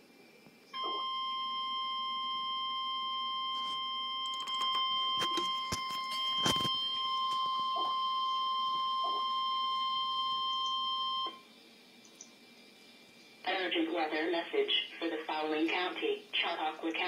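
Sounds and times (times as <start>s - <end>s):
shrill alarm tone: 0.8s - 11.5s.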